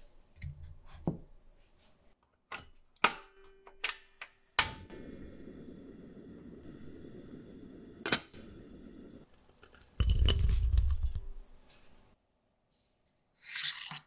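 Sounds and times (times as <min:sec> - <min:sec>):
gas burner hissing: 0:03.9 - 0:09.3.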